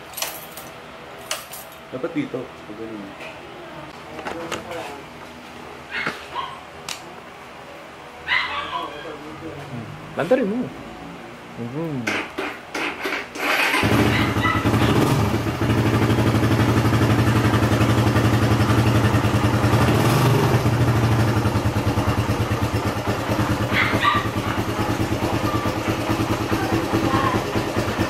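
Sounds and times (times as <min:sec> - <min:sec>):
motorcycle engine starting: 0:12.1 - 0:28.0
motorcycle engine idling: 0:13.4 - 0:28.0.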